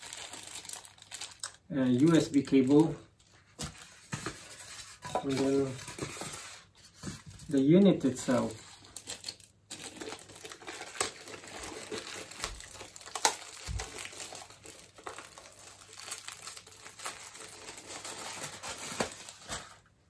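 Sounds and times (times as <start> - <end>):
plastic bag crinkling: 0.0 - 3.1, 7.5 - 19.9.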